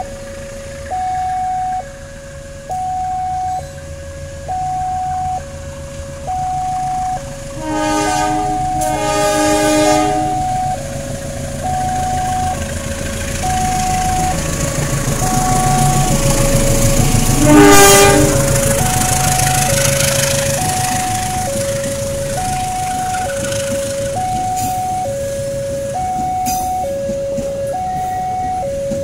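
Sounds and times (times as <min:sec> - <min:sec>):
low train rumble: 0:00.0 - 0:29.0
two-tone level-crossing alarm: 0:00.0 - 0:29.0
locomotive horn blasts: 0:06.7 - 0:10.9, 0:15.2 - 0:21.6, 0:22.2 - 0:25.4.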